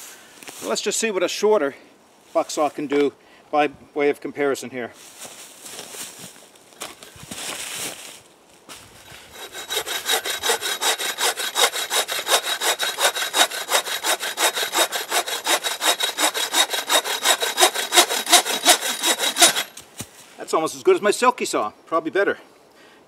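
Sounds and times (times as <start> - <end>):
bucksaw cutting through log: 9.0 - 19.8.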